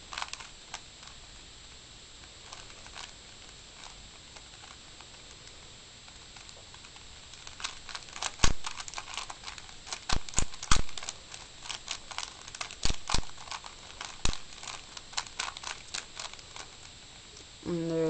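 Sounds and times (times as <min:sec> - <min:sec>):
puzzle cube clicking: 0:06.4 - 0:16.8.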